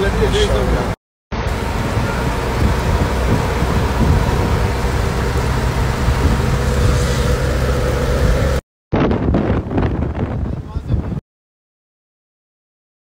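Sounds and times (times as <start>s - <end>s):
wind rumbling on microphone: 1.4s - 11.2s.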